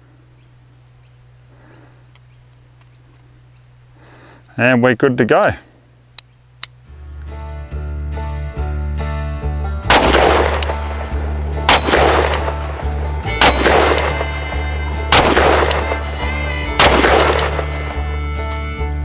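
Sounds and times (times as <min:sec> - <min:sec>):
guitar background music: 0:06.8 - 0:19.0
revolver shots echoing: 0:09.9 - 0:12.8, 0:13.4 - 0:14.4, 0:15.1 - 0:16.0, 0:16.8 - 0:17.7.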